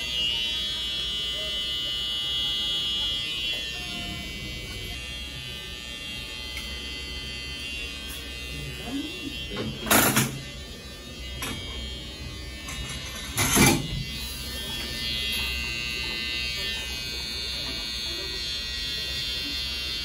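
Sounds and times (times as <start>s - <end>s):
electric beard trimmer buzzing: 0.0s - 20.0s.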